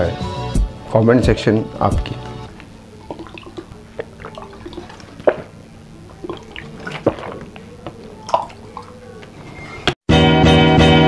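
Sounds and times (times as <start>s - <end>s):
person gulping water from bottle: 2.5s - 9.4s.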